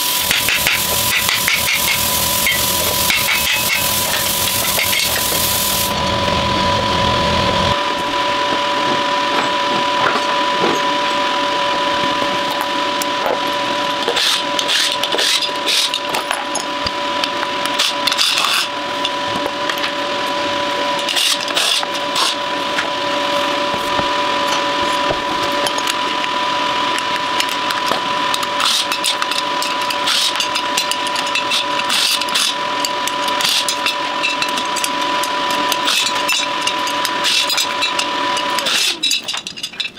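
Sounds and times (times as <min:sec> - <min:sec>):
angle grinder on steel: 0:00.0 - 0:39.2
steady whine: 0:00.0 - 0:39.9
clanks and rattles of tools: 0:14.0 - 0:20.0, 0:27.0 - 0:39.9.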